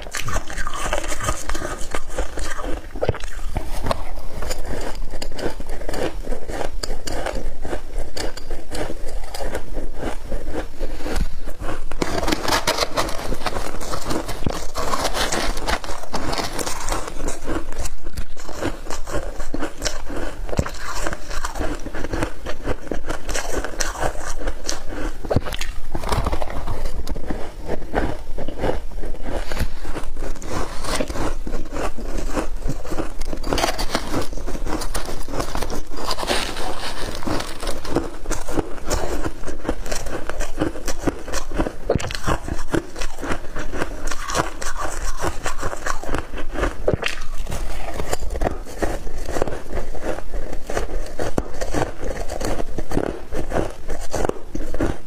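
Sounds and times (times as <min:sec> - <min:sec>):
shaved ice crunching: 0:30.4 - 0:43.2.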